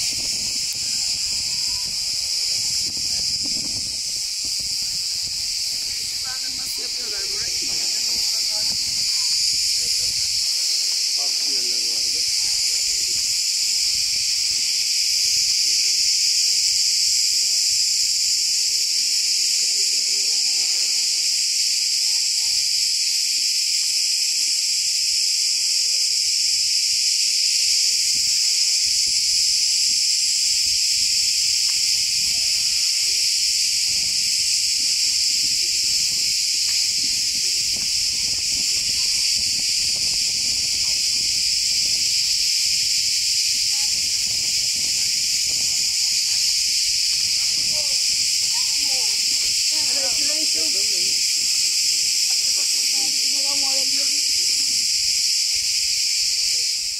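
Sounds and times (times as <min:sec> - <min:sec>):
cicadas buzzing: 0:00.0 - 0:56.9.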